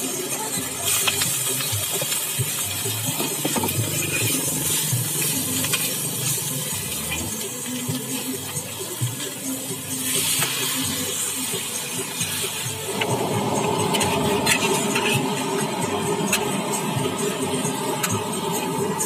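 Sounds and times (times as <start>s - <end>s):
food sizzling in a wok: 0.0s - 19.0s
metal spatula scraping and clinking: 13.8s - 15.4s.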